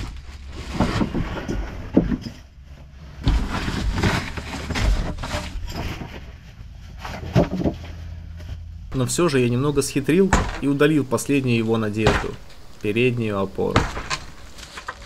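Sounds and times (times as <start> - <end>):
wooden boards creaking and scraping: 0.0 - 8.0, 13.6 - 15.0.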